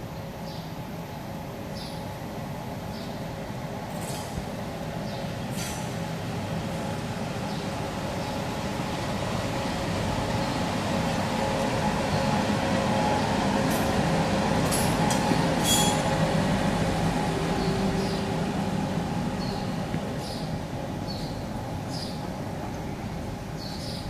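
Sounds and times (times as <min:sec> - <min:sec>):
electric locomotive hum: 0:00.0 - 0:24.0
wheels rumbling on rails: 0:02.9 - 0:24.0
high wheel squeals: 0:15.6 - 0:16.1.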